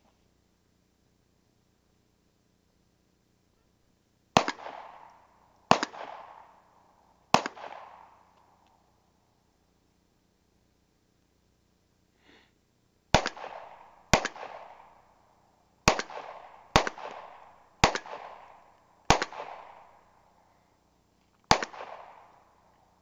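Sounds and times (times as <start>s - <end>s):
gunshots with echo: 5.7s - 6.6s, 7.3s - 8.2s, 13.2s - 15.0s, 15.9s - 19.9s, 21.5s - 22.3s.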